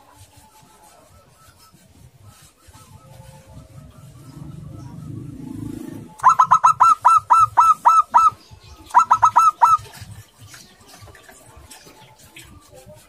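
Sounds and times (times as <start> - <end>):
dove cooing: 4.1 - 10.2.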